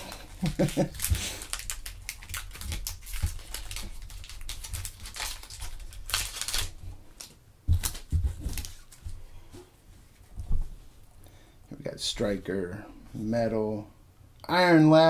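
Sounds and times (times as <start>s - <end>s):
foil pack crinkling and tearing: 0.0s - 9.0s.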